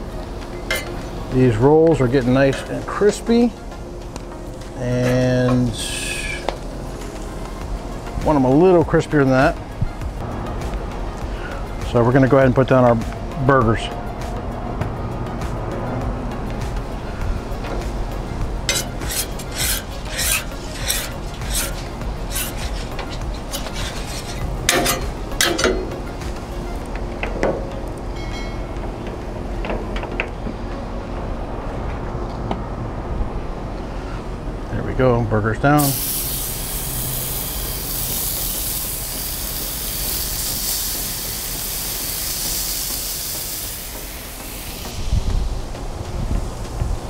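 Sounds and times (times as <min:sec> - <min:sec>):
metal spatula scraping a griddle: 0:18.6 - 0:25.7
burger patties sizzling on griddle: 0:35.8 - 0:45.6.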